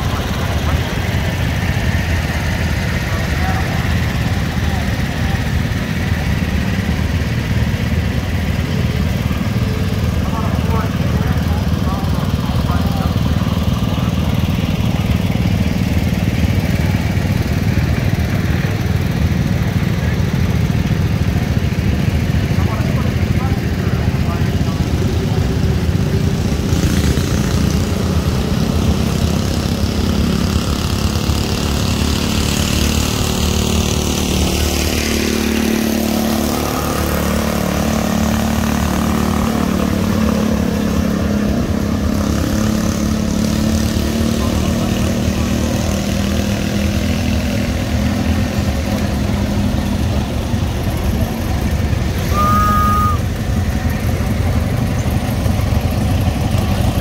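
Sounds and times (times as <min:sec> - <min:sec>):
tractor engines running: 0:00.0 - 0:57.0
brief high tone: 0:52.2 - 0:53.3.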